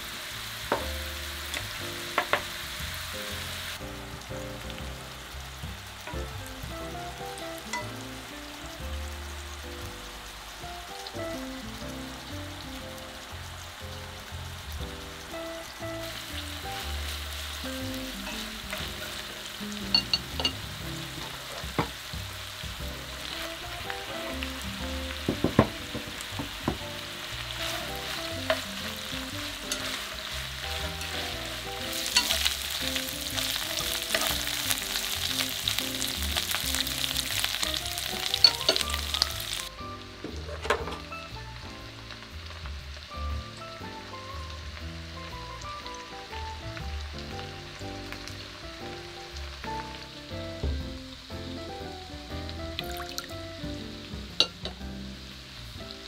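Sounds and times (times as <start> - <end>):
meat sizzling in a frying pan: 0.0 - 56.0
soft background music: 0.0 - 56.0
chopsticks clicking against pan: 32.0 - 32.5.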